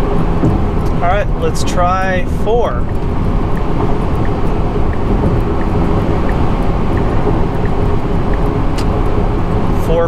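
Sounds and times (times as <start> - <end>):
wind noise: 0.0 - 9.9
tyre noise in car cabin: 2.9 - 9.8.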